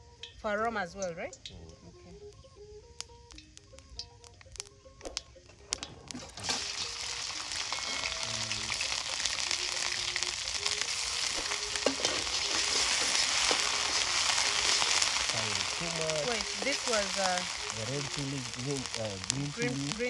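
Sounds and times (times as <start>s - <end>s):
paste sizzling in hot oil: 6.1s - 20.0s
metal spatula stirring: 6.4s - 17.8s.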